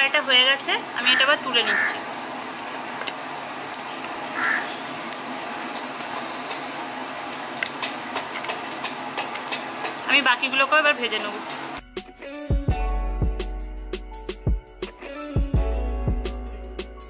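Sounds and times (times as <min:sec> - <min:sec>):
deep-frying sizzle with pops: 0:02.1 - 0:11.8.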